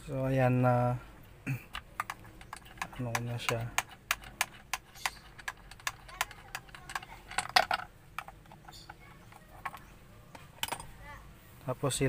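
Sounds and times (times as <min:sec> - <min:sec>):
even ticking: 0:01.5 - 0:10.0
plastic clatter: 0:01.6 - 0:10.9
plastic clicks and rattles: 0:01.6 - 0:10.9.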